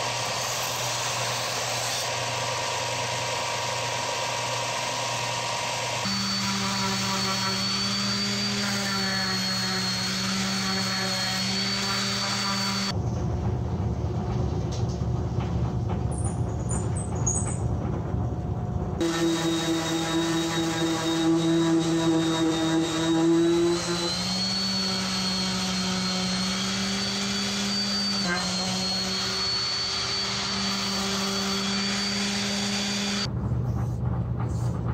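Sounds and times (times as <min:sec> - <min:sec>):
orbital sander whining hum: 0:01.0 - 0:13.0, 0:19.0 - 0:33.3
belt sander hissing: 0:05.9 - 0:12.9, 0:19.0 - 0:33.3.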